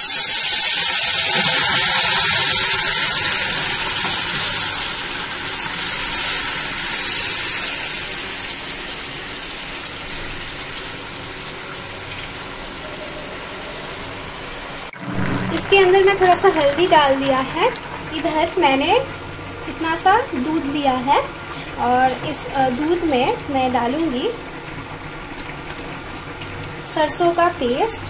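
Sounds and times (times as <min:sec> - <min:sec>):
loud sizzling hiss in hot oil: 0:00.0 - 0:15.0.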